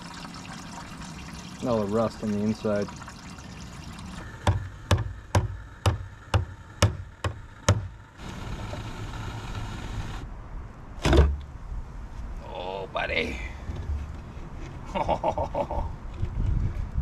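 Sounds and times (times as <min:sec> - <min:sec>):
hammer striking steel tank: 0:04.4 - 0:08.0.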